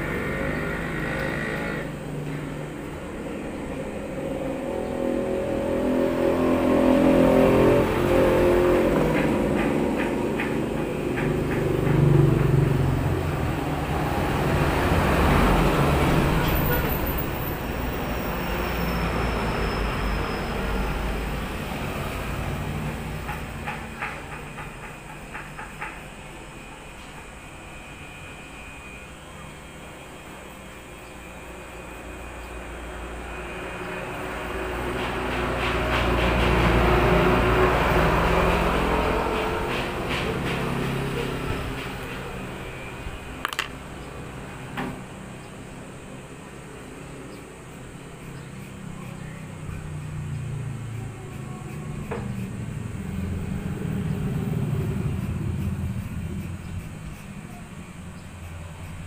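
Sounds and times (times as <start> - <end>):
electric hair clippers running: 0.0 - 2.5
road traffic passing: 0.0 - 59.0.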